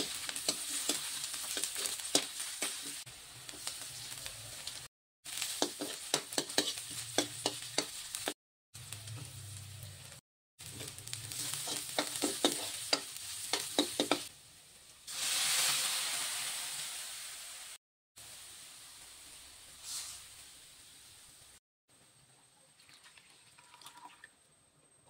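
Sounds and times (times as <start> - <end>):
metal spoon scraping wok: 0.0 - 8.2, 10.6 - 14.3
food sizzling in hot oil: 0.0 - 21.6
liquid poured into hot pan: 22.8 - 24.4.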